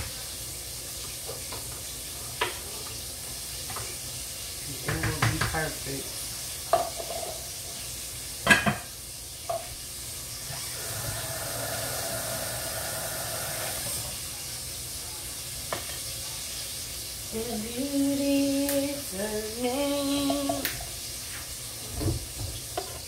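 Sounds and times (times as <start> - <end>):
low steady sizzle: 0.0 - 23.0
woman humming: 17.3 - 20.7.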